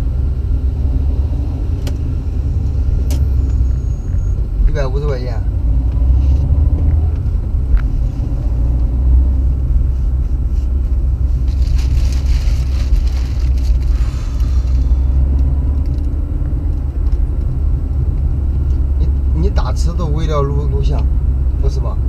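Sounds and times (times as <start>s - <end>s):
car engine: 0.0s - 22.0s
road noise: 0.0s - 22.0s.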